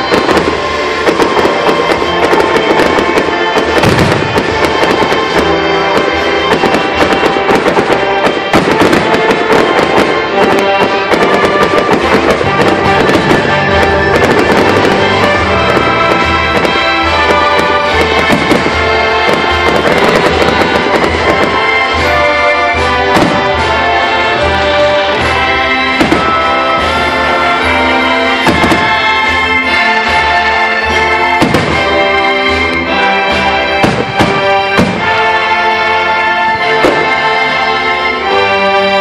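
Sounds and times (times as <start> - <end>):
firework shells bursting: 0.0 - 24.2
orchestral music with brass: 0.0 - 39.0.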